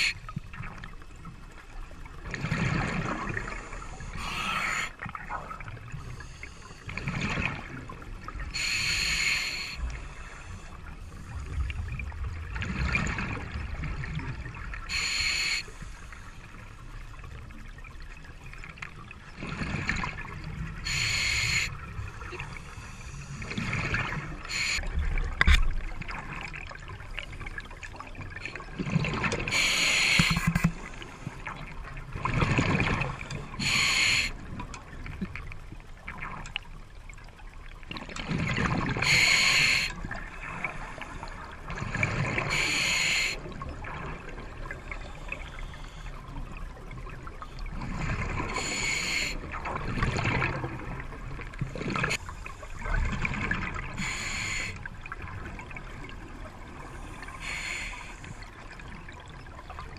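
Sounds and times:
diver breathing through regulator: 0:03.5 - 0:05.0, 0:08.5 - 0:11.4, 0:14.9 - 0:16.2, 0:20.8 - 0:21.8, 0:24.4 - 0:24.9, 0:29.5 - 0:31.4, 0:33.6 - 0:34.4, 0:39.0 - 0:40.0, 0:42.4 - 0:43.4, 0:48.4 - 0:49.4, 0:54.0 - 0:54.8, 0:57.0 - 0:58.4
bubbling gurgle: 0:11.2 - 0:15.3, 0:46.2 - 0:52.2.

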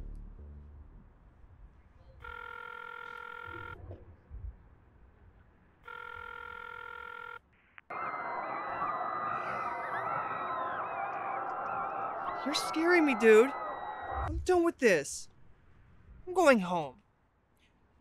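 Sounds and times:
phone ringing tone: 0:02.2 - 0:03.8, 0:05.8 - 0:11.0.

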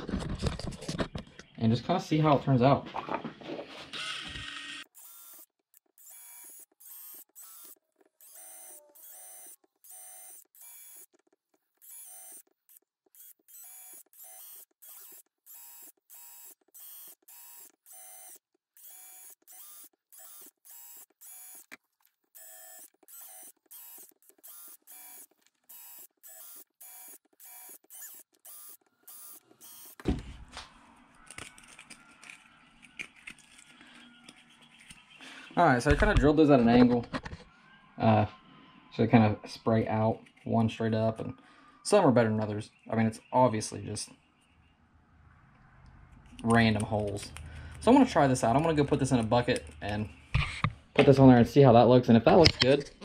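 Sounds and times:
cordless drill motor whine: 0:03.9 - 0:30.2.

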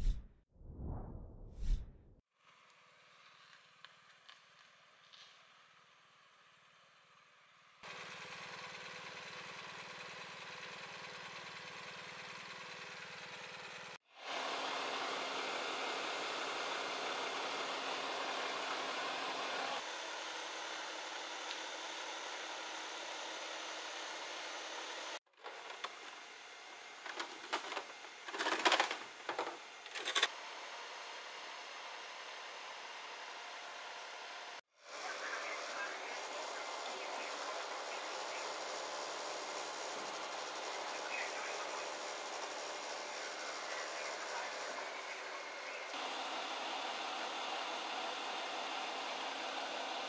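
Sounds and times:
engine idling: 0:07.8 - 0:25.1, 0:29.2 - 0:50.0.

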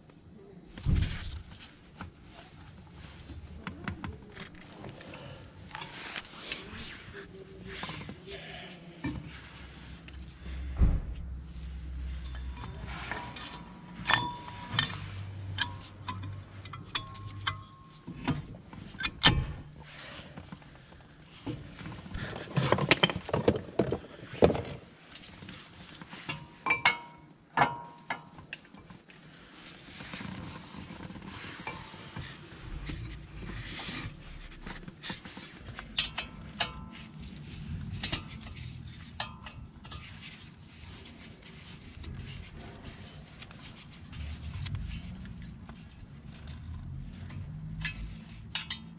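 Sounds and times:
metallic clinks and knocks: 0:10.0 - 0:19.8, 0:26.3 - 0:28.6, 0:46.3 - 0:48.9.

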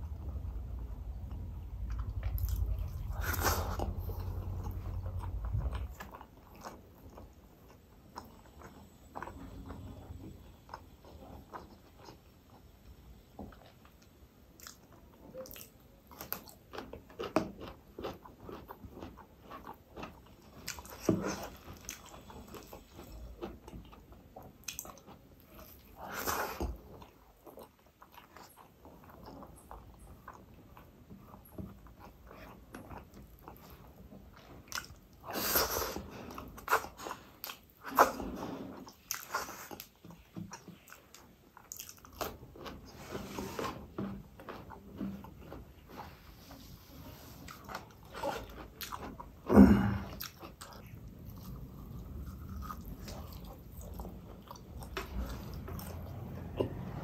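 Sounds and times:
low rumble: 0:00.0 - 0:06.2, 0:50.9 - 0:57.0
person chewing with wet mouth sounds: 0:00.0 - 0:57.0.

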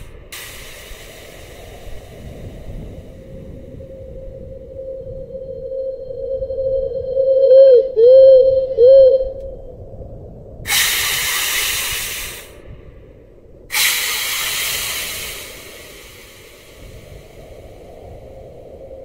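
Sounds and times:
loud hissing bursts: 0:00.0 - 0:04.3, 0:10.7 - 0:12.7, 0:13.7 - 0:18.8.

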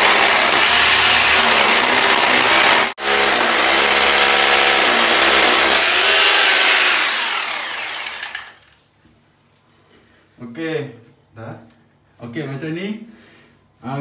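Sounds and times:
hammer drill drilling through wall: 0:00.0 - 0:08.7
drill motor winding down whine: 0:00.3 - 0:02.9, 0:05.8 - 0:08.6.

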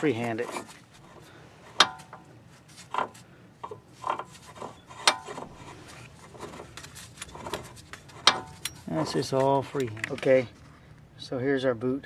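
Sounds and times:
light rubbing: 0:00.0 - 0:10.8
metal rod clunks and taps: 0:01.8 - 0:02.2.

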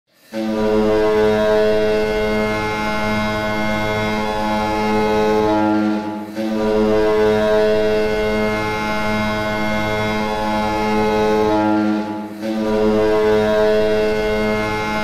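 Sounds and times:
deep goal horn blast: 0:00.2 - 0:15.0.

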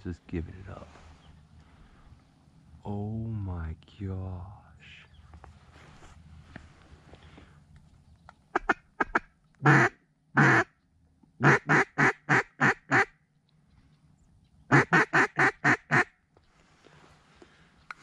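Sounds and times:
duck call quacking: 0:08.5 - 0:10.7, 0:11.4 - 0:13.1, 0:14.7 - 0:16.1.

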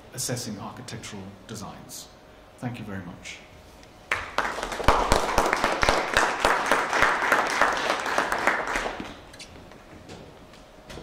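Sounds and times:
audience applauding: 0:04.1 - 0:09.3.

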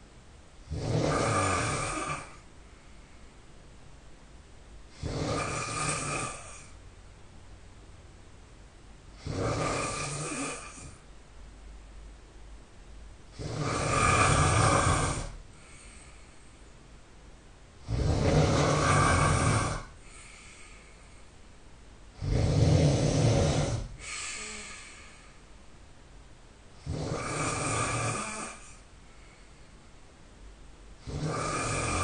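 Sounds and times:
person snoring loudly: 0:00.6 - 0:02.4, 0:04.9 - 0:06.7, 0:09.2 - 0:11.0, 0:13.3 - 0:16.0, 0:17.8 - 0:20.5, 0:22.2 - 0:25.2, 0:26.8 - 0:28.8, 0:31.0 - 0:32.0.

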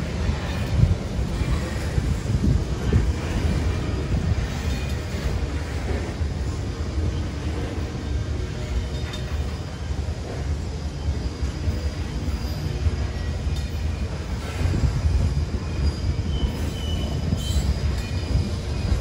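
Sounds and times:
train wheels rumbling on rails: 0:00.0 - 0:19.0
faint wheel squeals: 0:11.0 - 0:19.0.

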